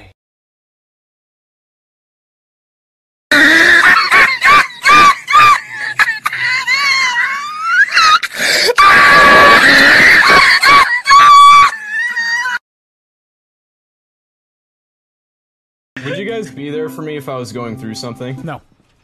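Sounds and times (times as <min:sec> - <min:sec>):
shrieking laughter: 0:03.3 - 0:12.6.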